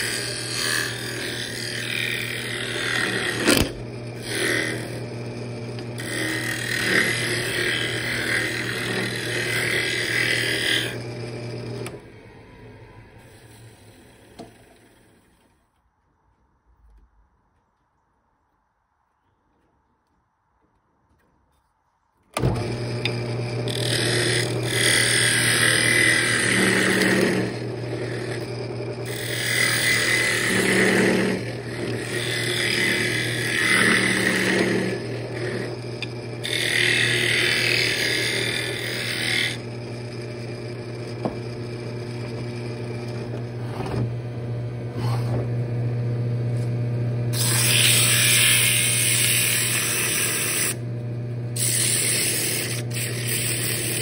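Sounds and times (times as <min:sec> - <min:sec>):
turning tool scraping wood: 0:00.0 - 0:12.0, 0:22.4 - 0:44.1, 0:47.3 - 0:50.8, 0:51.6 - 0:54.0
wood lathe motor humming: 0:00.0 - 0:15.5, 0:22.4 - 0:54.0.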